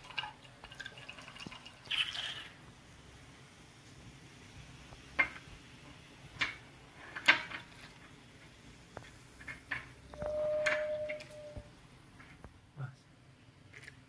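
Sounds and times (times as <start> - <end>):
steady tone: 10.1 - 11.7.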